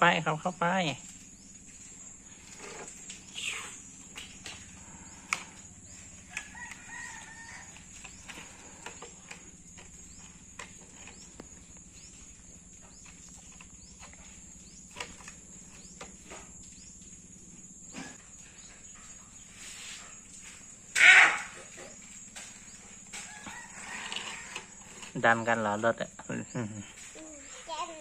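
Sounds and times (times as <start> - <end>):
rooster crowing: 5.9 - 8.2, 23.1 - 25.0.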